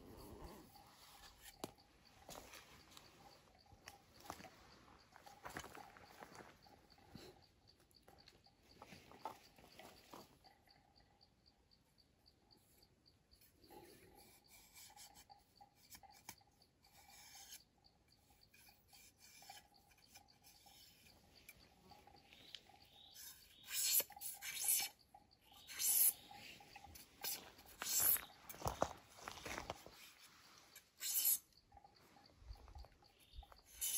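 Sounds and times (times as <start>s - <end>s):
knife scraping bamboo strips: 14.2s - 17.7s, 18.4s - 21.3s, 23.1s - 26.2s, 26.8s - 28.6s, 29.8s - 31.5s, 33.7s - 33.9s.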